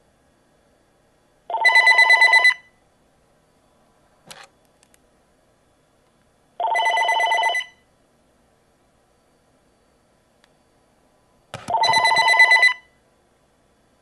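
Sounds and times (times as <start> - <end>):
cordless phone ringing: 1.5 - 2.6, 6.6 - 7.8, 11.6 - 12.9.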